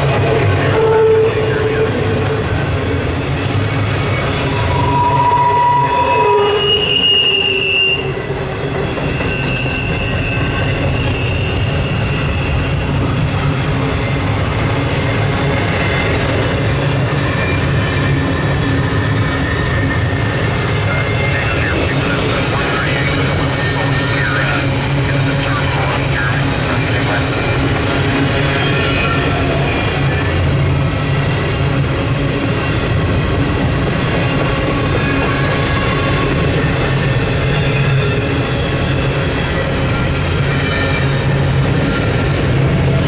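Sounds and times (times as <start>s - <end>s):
steel wheels rumbling on rail: 0.0s - 43.0s
wheels squealing: 0.1s - 14.5s.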